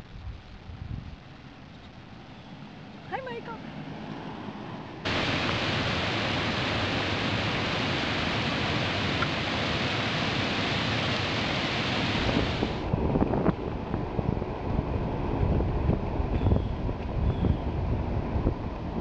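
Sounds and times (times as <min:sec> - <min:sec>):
wind on microphone: 0:00.0 - 0:02.0, 0:05.1 - 0:19.0
river water over rapids: 0:03.8 - 0:13.0.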